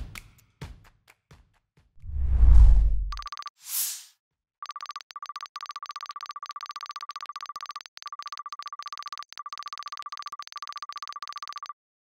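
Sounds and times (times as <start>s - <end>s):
clicky electronic typing beeps: 3.1s - 3.5s, 4.6s - 11.8s.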